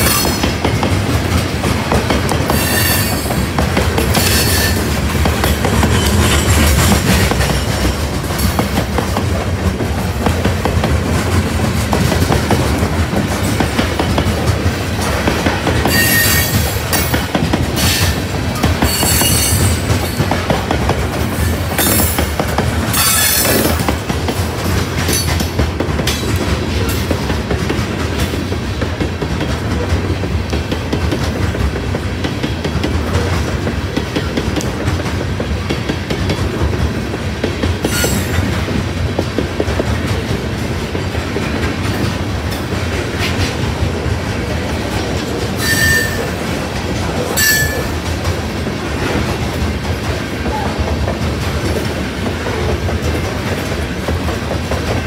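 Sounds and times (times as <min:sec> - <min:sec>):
freight train rumbling past: 0:00.0 - 0:55.0
wheels clacking over rail joints: 0:00.0 - 0:55.0
shrill wheel squeal: 0:02.5 - 0:03.3, 0:15.9 - 0:16.6, 0:23.0 - 0:23.6, 0:45.6 - 0:46.3, 0:47.4 - 0:47.9.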